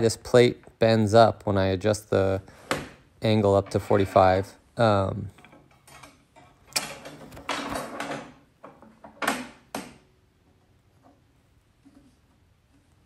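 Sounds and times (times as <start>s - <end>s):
sharp clicks and knocks: 5.3s - 13.0s.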